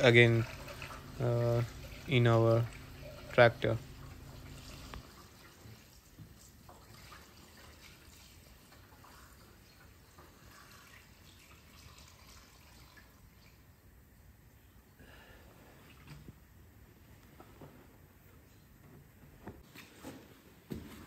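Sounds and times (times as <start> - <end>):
low hum: 0.0 - 5.0
fuel trickling into a tank: 0.0 - 13.8.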